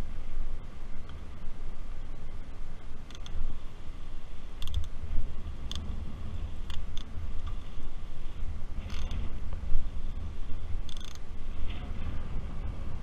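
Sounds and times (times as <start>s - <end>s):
wind buffeting microphone: 0.0s - 13.0s
bicycle clicks and ticks: 1.0s - 1.3s, 2.9s - 3.8s, 4.5s - 5.9s, 6.6s - 10.0s, 10.6s - 11.5s.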